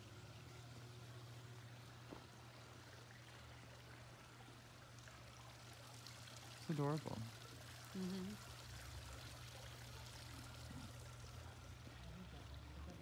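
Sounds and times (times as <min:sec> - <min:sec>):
short hummed voice: 0:07.9 - 0:08.5.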